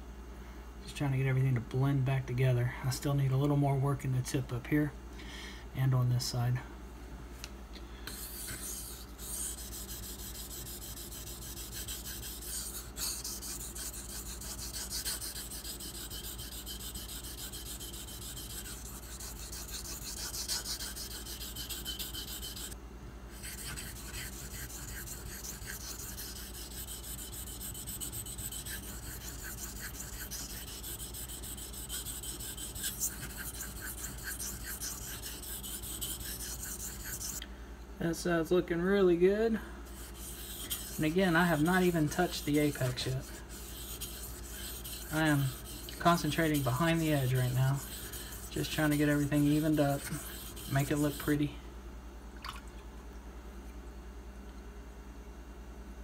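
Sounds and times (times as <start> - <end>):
knife scraping on whetstone: 8.1 - 22.8, 23.4 - 37.4, 39.9 - 51.4.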